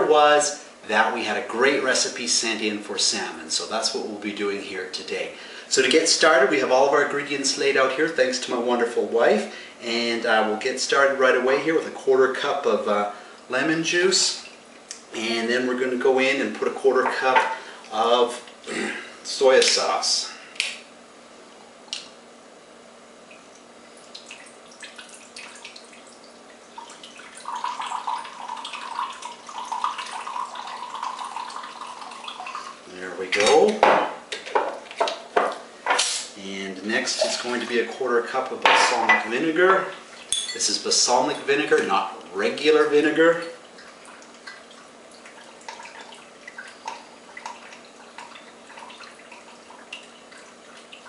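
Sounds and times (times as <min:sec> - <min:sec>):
liquid pouring into a cup: 0:23.9 - 0:32.9, 0:42.5 - 0:51.0.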